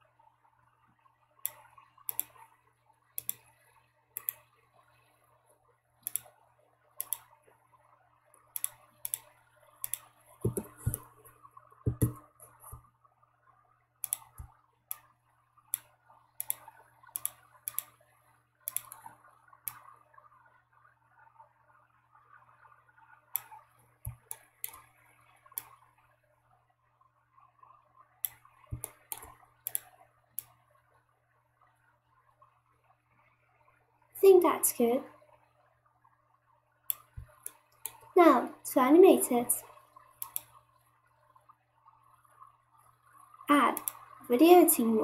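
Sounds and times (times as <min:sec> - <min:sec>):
mouse and keyboard clicks: 0:01.5 - 0:02.4, 0:03.2 - 0:03.5, 0:04.2 - 0:04.5, 0:06.0 - 0:06.3, 0:07.0 - 0:07.3, 0:08.6 - 0:11.2, 0:11.9 - 0:12.8, 0:14.0 - 0:15.1, 0:15.8 - 0:17.9, 0:18.7 - 0:19.1, 0:24.1 - 0:24.9, 0:28.2 - 0:30.5, 0:40.2 - 0:40.5, 0:43.8 - 0:44.0.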